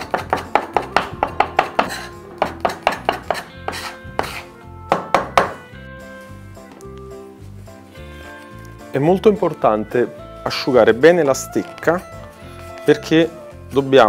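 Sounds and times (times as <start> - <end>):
knife chopping on wooden board: 0.0 - 5.6.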